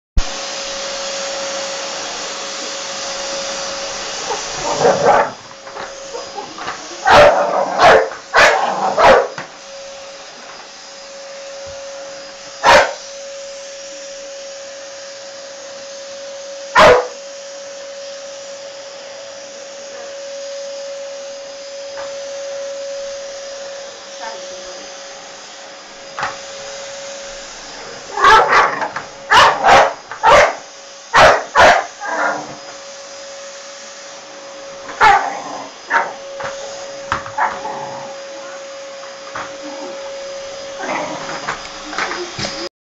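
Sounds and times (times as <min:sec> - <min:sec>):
vacuum cleaner running: 0:00.2 - 0:42.7
dog barking: 0:04.3 - 0:05.4, 0:06.1 - 0:09.3, 0:12.6 - 0:13.0, 0:16.8 - 0:17.2, 0:28.1 - 0:32.4, 0:35.0 - 0:36.2, 0:37.4 - 0:37.6.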